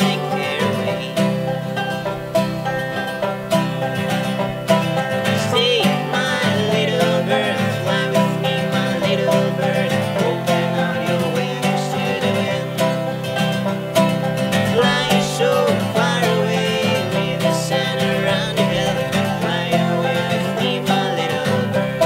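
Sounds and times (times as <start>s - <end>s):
acoustic guitar chords: 0.0s - 22.0s
banjo picking: 0.0s - 22.0s.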